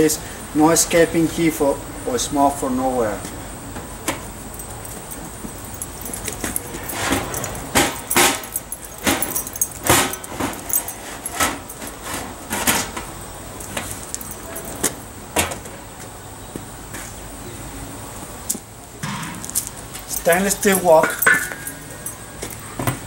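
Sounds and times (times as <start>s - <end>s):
metal pots clanking: 20.8s - 22.2s.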